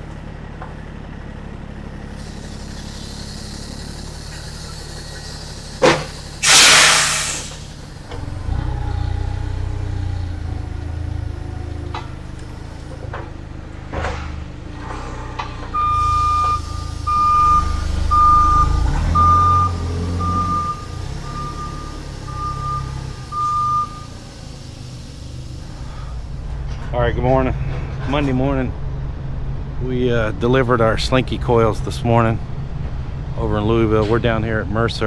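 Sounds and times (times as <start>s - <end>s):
forklift engine running: 0.0s - 35.0s
metal clunks: 11.8s - 15.8s
reversing alarm beeps: 15.7s - 24.2s.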